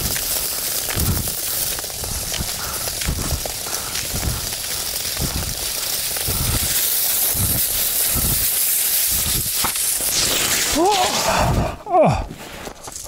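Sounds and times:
skis sliding over snow: 0.0s - 13.0s
dull low thumps: 2.0s - 4.6s.

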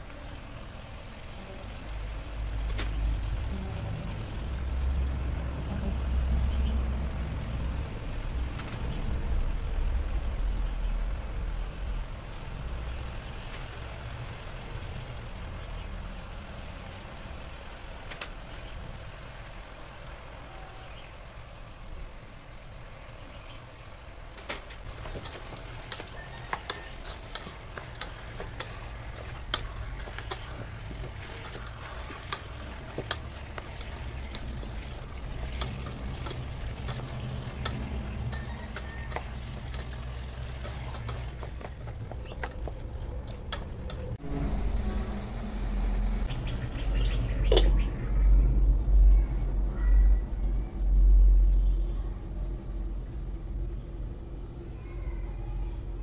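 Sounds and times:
steady low rumble: 24.7s - 56.0s.

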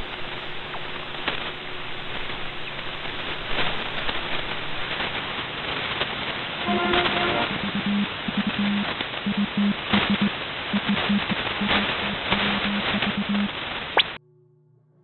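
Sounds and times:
radio static hissing: 0.0s - 14.2s
morse code beeping: 6.7s - 13.5s.

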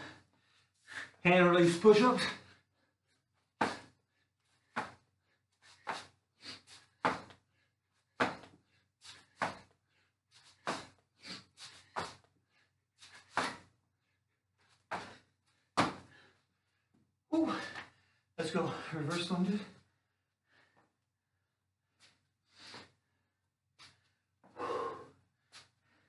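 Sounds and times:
body thudding on floor: 15.8s - 16.1s
man puffing breath: 24.5s - 25.2s.

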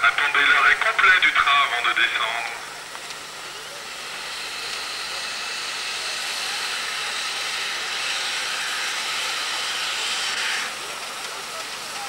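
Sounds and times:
steam hissing from locomotive: 2.6s - 12.0s.

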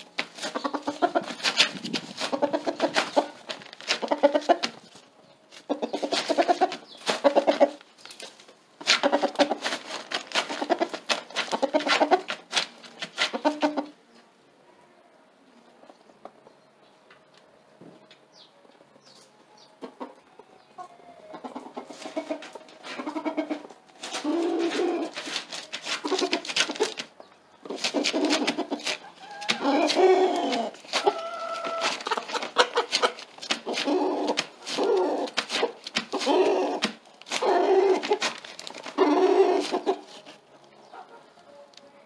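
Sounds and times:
rooster low repeated calls: 29.0s - 32.2s.

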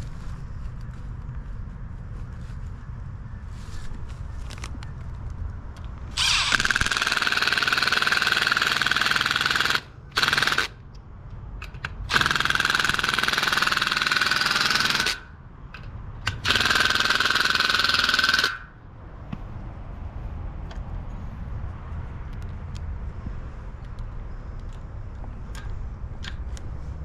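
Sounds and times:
impact driver whining and hammering: 16.3s - 18.7s.

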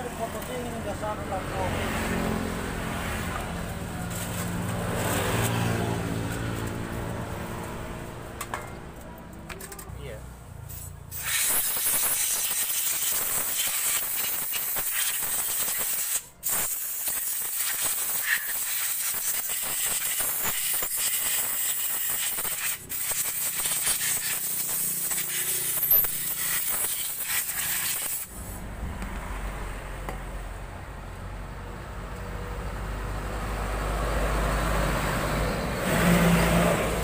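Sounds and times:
compressed air hissing from blow gun: 10.6s - 28.6s.

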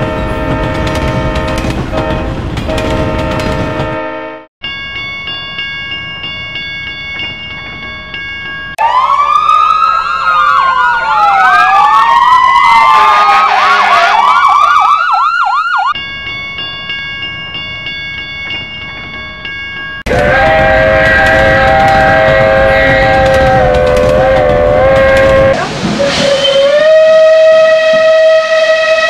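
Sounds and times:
level crossing warning bell: 2.9s - 9.0s, 15.9s - 22.6s
police sirens wailing and yelping: 8.8s - 16.0s, 20.1s - 25.7s.

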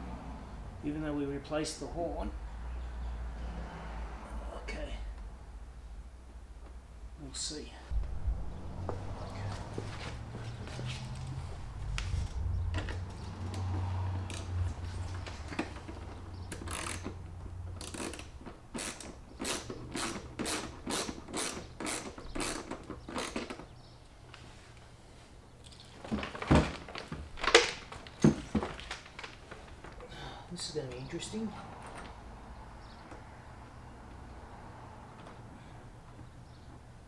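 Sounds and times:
ratchet wrench clicking: 16.5s - 17.2s, 17.8s - 23.5s.

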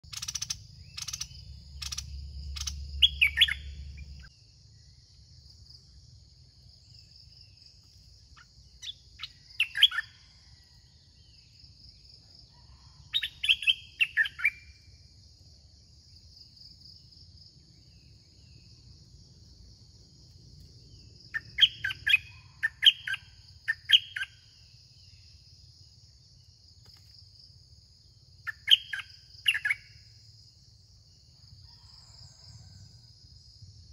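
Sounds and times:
high insect drone: 0.0s - 9.8s
songbird whistling: 0.1s - 4.3s, 8.8s - 10.2s, 21.4s - 24.4s, 28.5s - 29.9s.

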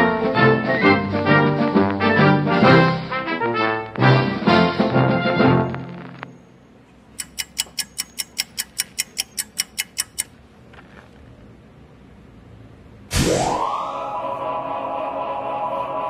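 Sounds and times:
brass music: 0.0s - 6.2s
sharp evenly spaced ticks: 7.1s - 10.4s.

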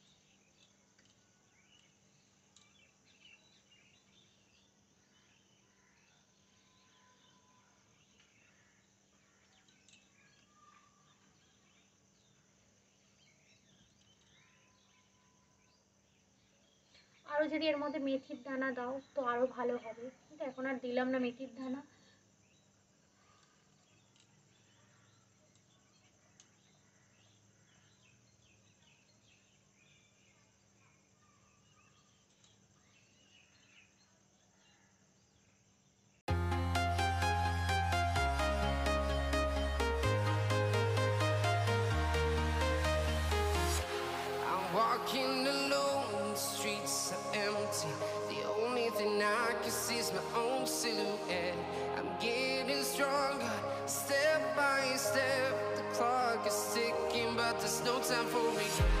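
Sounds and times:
faint bird chirps: 0.0s - 36.2s
click: 24.1s - 24.3s
loud background music: 36.3s - 59.0s.

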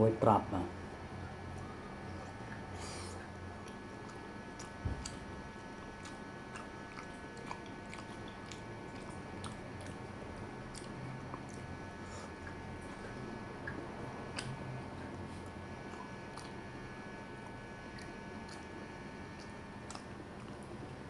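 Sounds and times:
faint steady hum: 0.0s - 21.0s
man chewing food: 1.6s - 21.0s
wet mouth clicks: 13.6s - 14.6s, 19.3s - 20.6s.

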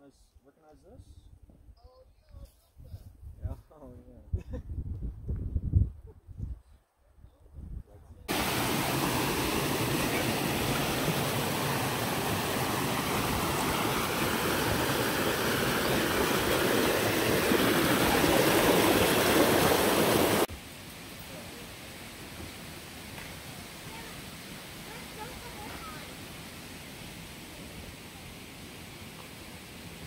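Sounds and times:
stream rushing over rocks: 8.3s - 30.0s.

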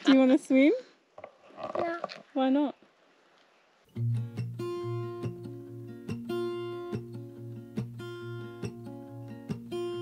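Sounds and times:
acoustic guitar picking and strumming: 3.9s - 10.0s.

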